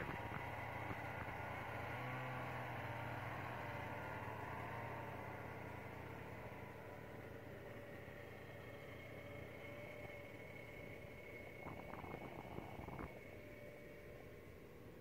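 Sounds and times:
snowmobile engine droning: 0.0 - 15.0.

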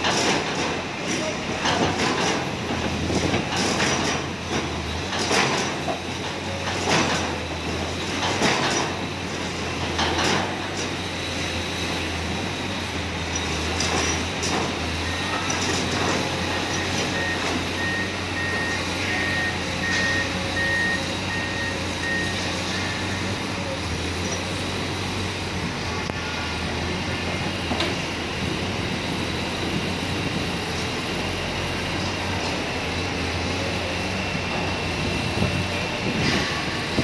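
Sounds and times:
excavator diesel engine running: 0.0 - 37.0
high-pitched warning alarm beeps: 14.9 - 23.6.

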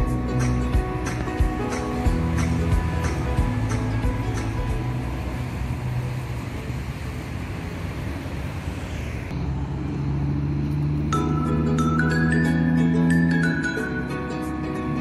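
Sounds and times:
light mallet music: 0.0 - 5.8, 11.0 - 15.0
busy road traffic: 0.0 - 15.0.

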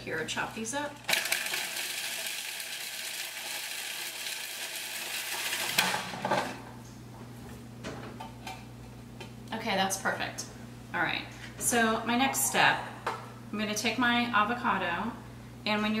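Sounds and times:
food processor chopping: 1.1 - 6.6.

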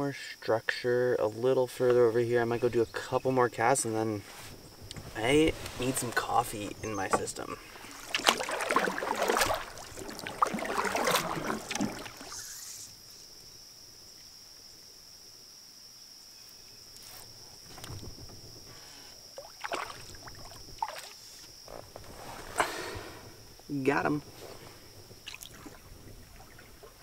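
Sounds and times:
paddle strokes splashing in water: 4.4 - 12.5, 19.4 - 23.1, 24.4 - 27.0.

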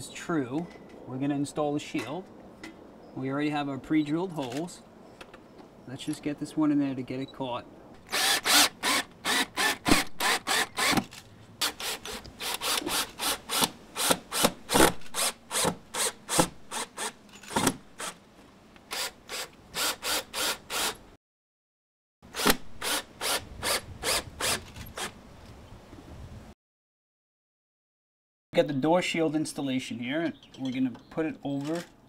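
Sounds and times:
cordless drill clicking: 8.0 - 14.5.

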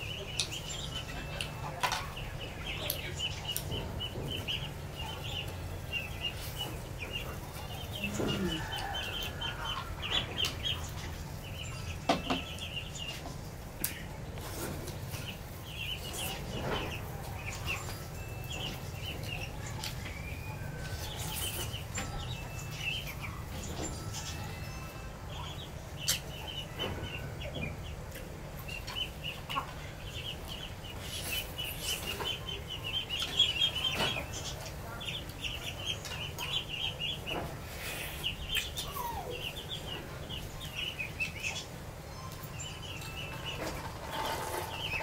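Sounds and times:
birds chirping: 0.0 - 45.0
lower bird calls: 7.5 - 10.9, 37.7 - 43.7.

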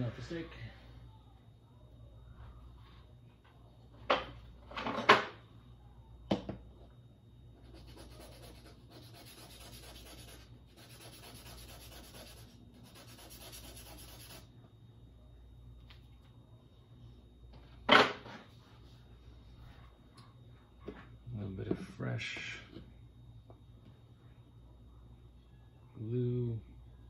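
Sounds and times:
stick rubbing on sanding pad: 7.8 - 14.4.

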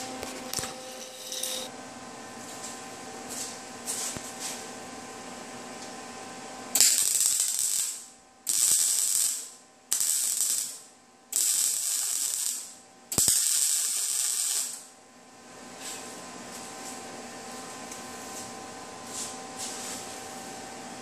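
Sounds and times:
welder crackling: 6.8 - 14.9.

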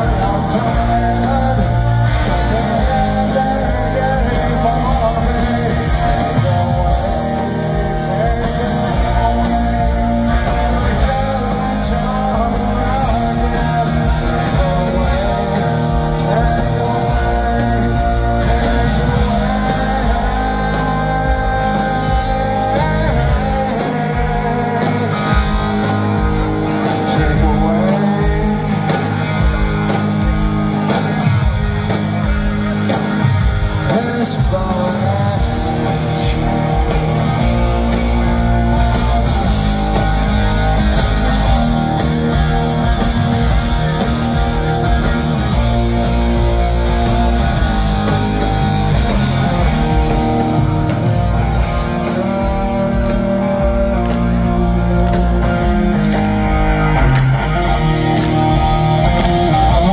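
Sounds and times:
lead vocals singing: 0.0 - 59.9
punk rock band playing: 0.0 - 59.9.

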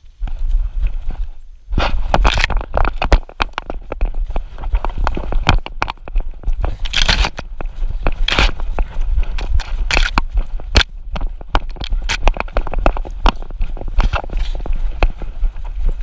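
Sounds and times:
rustling: 0.0 - 16.0
undergrowth brushing camera: 0.0 - 16.0
camera mount jostling: 2.1 - 4.1, 6.7 - 8.6, 9.4 - 12.6.

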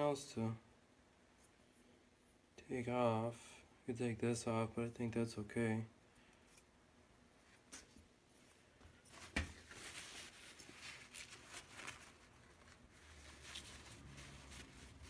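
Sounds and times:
paper towel rustling: 7.5 - 15.0.

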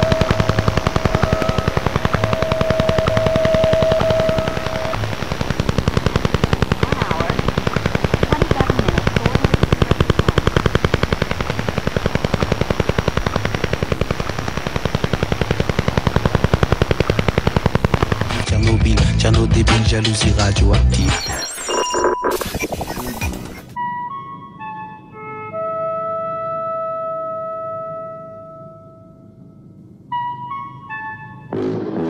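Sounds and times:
rapid even radio tapping: 0.0 - 18.6, 21.0 - 23.8
steady radio tone: 0.0 - 18.8, 20.8 - 23.8.

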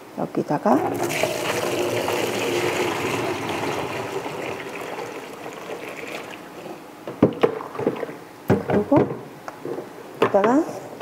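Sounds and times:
liquid pouring into bucket: 0.8 - 8.2.

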